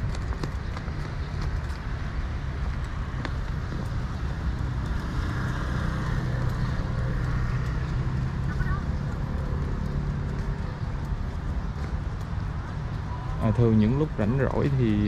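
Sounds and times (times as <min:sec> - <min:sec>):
footsteps clicking: 0:00.0 - 0:13.2
low traffic rumble: 0:00.0 - 0:15.0
vehicle engine hum: 0:00.0 - 0:15.0.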